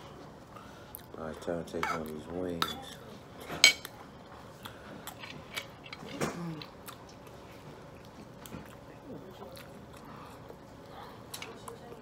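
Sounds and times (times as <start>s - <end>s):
chewing and biting: 4.6s - 12.0s.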